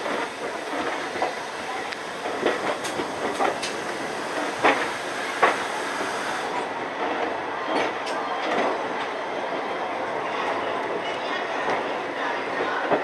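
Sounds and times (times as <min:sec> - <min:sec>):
wheels clacking over rail joints: 0:00.0 - 0:08.8
train coach rumbling: 0:00.0 - 0:13.0.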